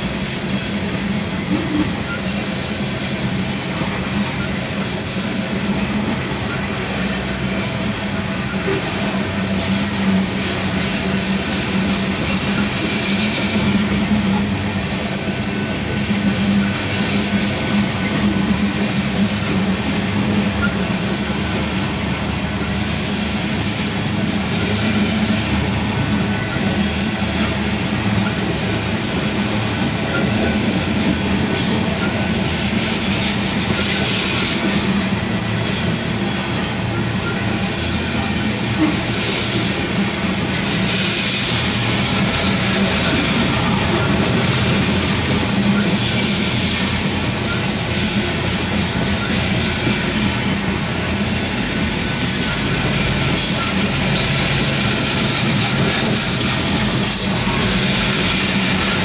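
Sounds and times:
steel wheels clattering on rail: 0.0s - 59.0s
high-pitched wheel squeals: 27.6s - 28.6s.

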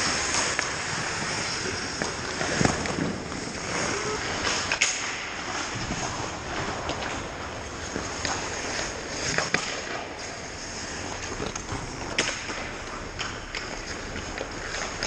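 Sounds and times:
hockey sticks and puck clacking: 0.0s - 15.0s
skates scraping ice: 0.0s - 15.0s
steady background noise: 0.0s - 15.0s.

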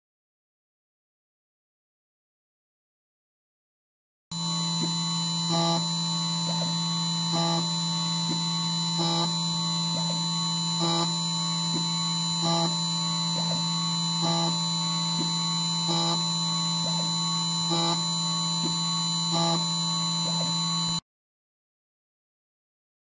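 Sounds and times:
key cutting machine motor whine: 4.4s - 21.0s.

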